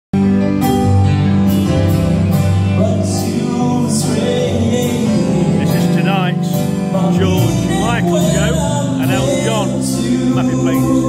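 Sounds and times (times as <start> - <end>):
drums: 0.1 - 11.0
keyboard: 0.1 - 11.0
guitars: 0.2 - 11.0
person singing: 2.7 - 11.0.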